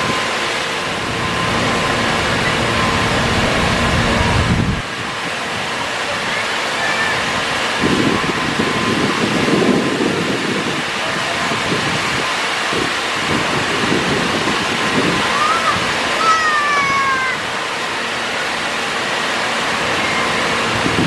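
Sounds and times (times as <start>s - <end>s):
low rumbling: 0.0s - 5.9s
waterfall rushing: 0.0s - 21.0s.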